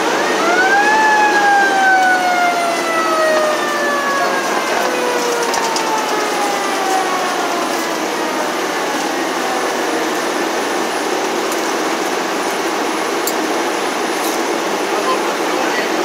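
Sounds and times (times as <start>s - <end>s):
siren winding down: 0.0s - 13.2s
fire truck engine and road noise: 0.0s - 16.0s.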